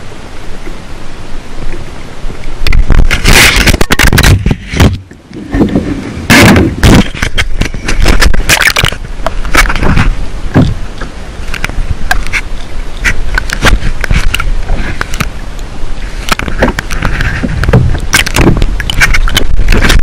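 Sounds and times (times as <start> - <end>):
wind: 0.0 - 20.0
camera being handled scraping: 2.7 - 5.0, 6.3 - 10.2, 11.5 - 15.3, 16.2 - 20.0.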